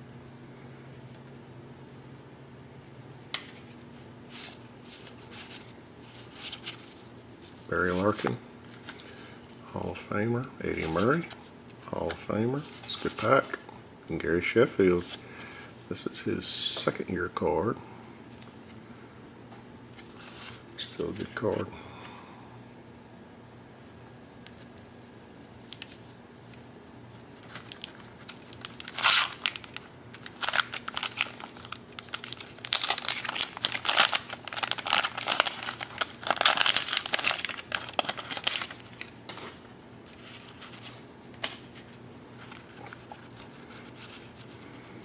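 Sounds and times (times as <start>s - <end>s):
wax paper tearing and crumpling: 27.4s - 39.1s.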